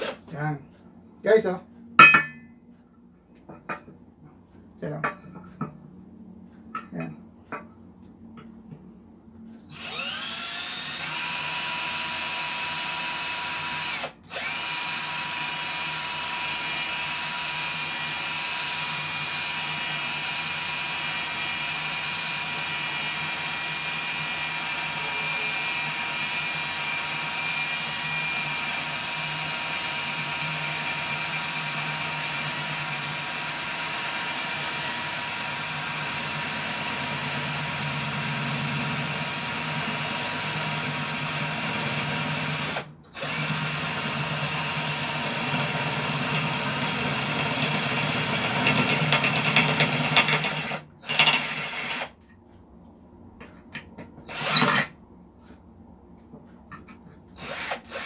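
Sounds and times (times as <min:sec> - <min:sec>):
drill boring into steel: 0:09.7 - 0:52.1, 0:54.3 - 0:54.9, 0:57.4 - 0:58.0.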